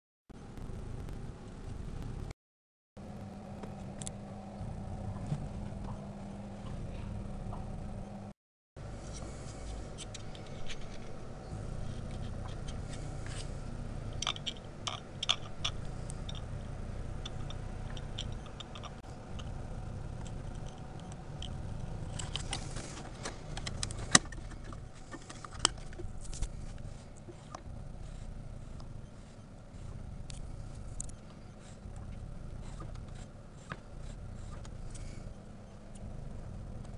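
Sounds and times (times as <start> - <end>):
low steady rumble: 0.4 - 2.3, 3.0 - 36.9.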